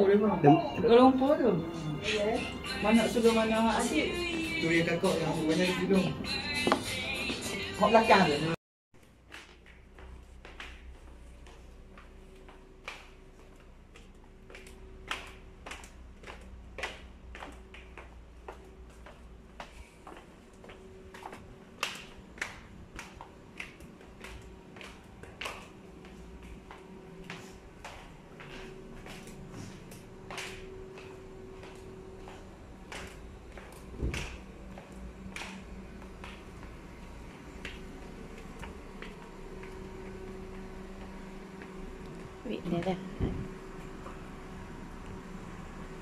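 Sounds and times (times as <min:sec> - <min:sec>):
steady low hum: 0:08.3 - 0:46.0
sandal footsteps on tiled stairs: 0:09.0 - 0:44.5.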